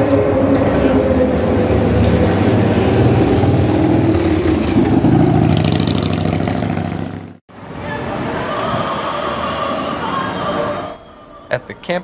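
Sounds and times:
street traffic: 0.0s - 12.0s
motorcycle engine accelerating past: 2.8s - 7.4s.

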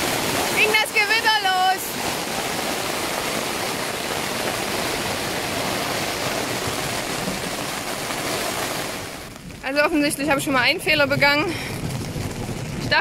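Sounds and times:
heavy rain on tent fabric: 0.0s - 13.0s.

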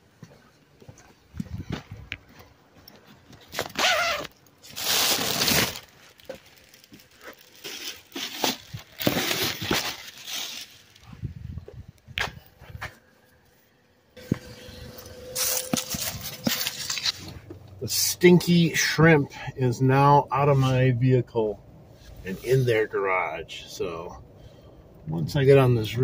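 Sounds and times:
bag crinkling and rustling: 3.4s - 11.2s, 14.2s - 17.8s.

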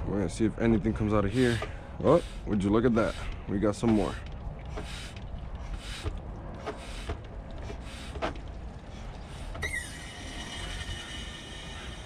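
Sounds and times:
oil extractor hissing and whistling: 9.6s - 12.0s.

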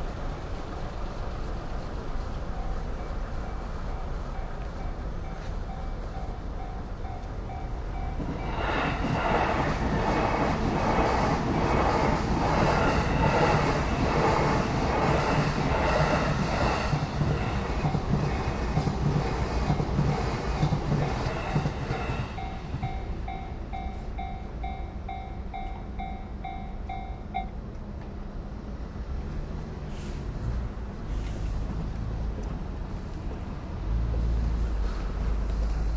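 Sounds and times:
train wheels clattering: 0.9s - 26.2s
level-crossing bell ringing: 21.0s - 27.5s.

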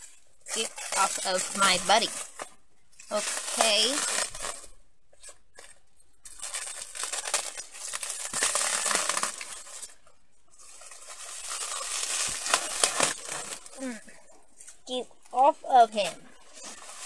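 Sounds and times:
plastic wrap crinkling and tearing: 0.0s - 17.0s.

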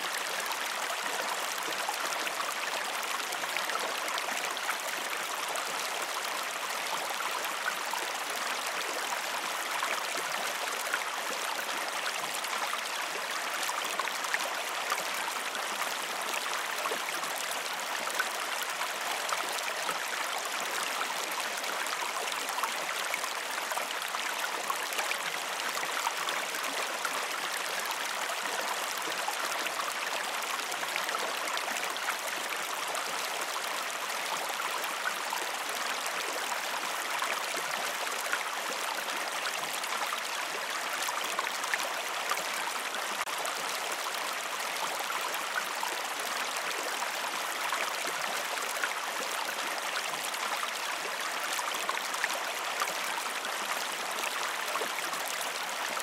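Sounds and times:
creek water running over rocks: 0.0s - 56.0s.

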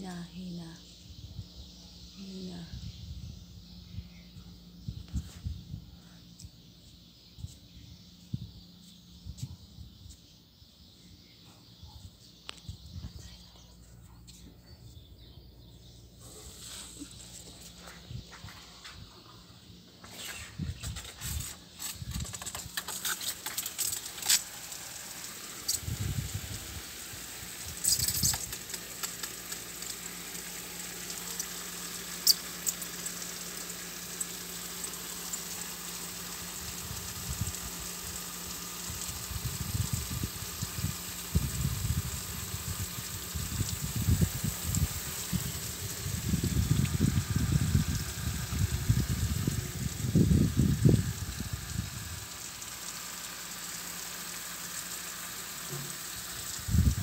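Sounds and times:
low rumbling on microphone: 0.0s - 6.6s, 39.3s - 52.2s
outdoor hiss: 9.8s - 57.0s
sharp clicks: 21.8s - 25.9s, 27.7s - 31.6s.

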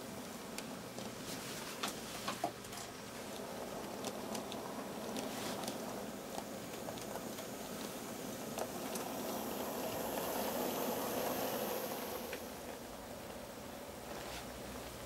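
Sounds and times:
model train rolling past: 3.2s - 13.9s
faint high whine: 3.5s - 15.0s.

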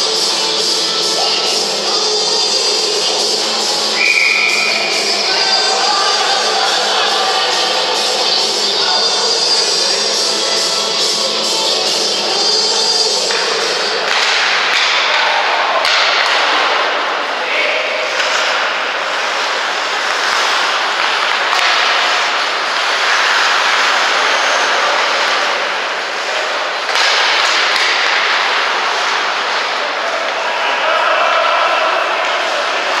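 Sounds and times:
hockey sticks and puck knocking: 13.3s - 16.9s, 18.1s - 18.8s, 20.0s - 24.0s, 26.8s - 29.1s
skates scraping on ice: 18.0s - 30.5s.

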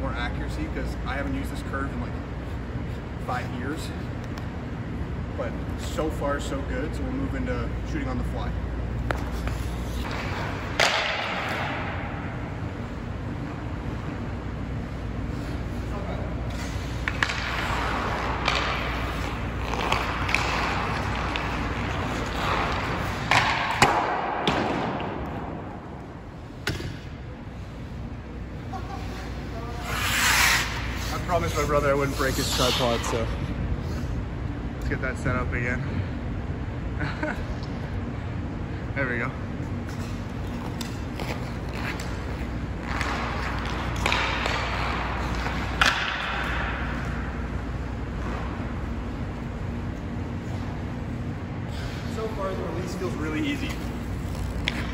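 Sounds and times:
skates scraping on ice: 9.0s - 11.6s, 15.2s - 24.9s, 28.9s - 33.3s, 39.8s - 49.0s, 51.8s - 54.9s
hockey stick hitting puck: 9.1s - 12.2s, 17.0s - 25.6s, 40.8s - 47.3s.

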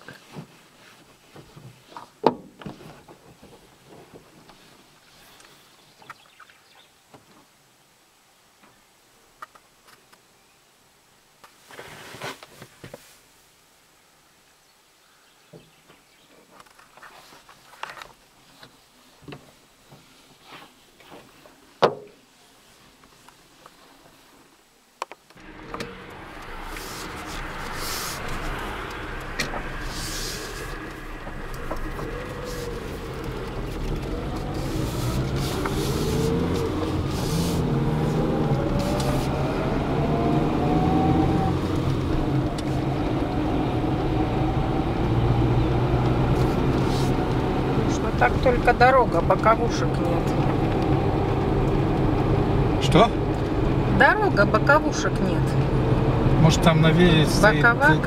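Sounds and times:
road noise inside car: 25.3s - 58.0s
car engine hum: 25.4s - 58.0s.

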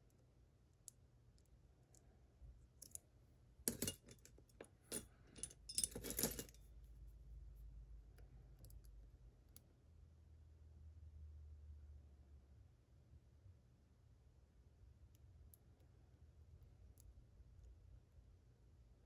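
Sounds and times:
metal picks rattling: 3.7s - 6.6s.

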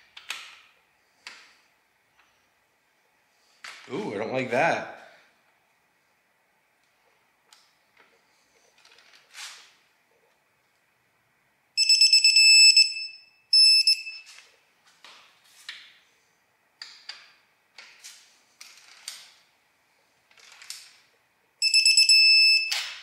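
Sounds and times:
torque wrench beeping: 11.8s - 14.2s, 21.6s - 23.0s.

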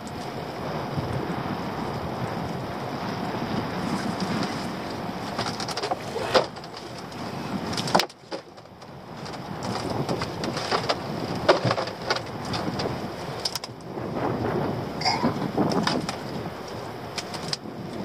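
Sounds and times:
wind buffeting microphone: 0.0s - 18.0s
lobster pots knocking and rattling: 7.7s - 13.8s.

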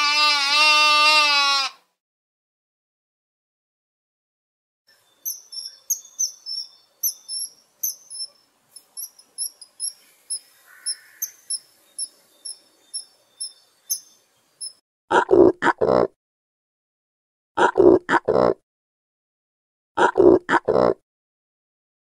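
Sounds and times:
kingfisher calling: 5.2s - 14.8s.

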